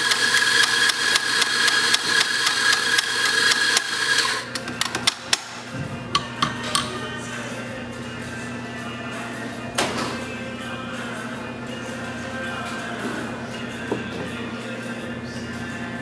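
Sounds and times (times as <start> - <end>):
coffee grinder whining and rattling: 0.0 - 5.1.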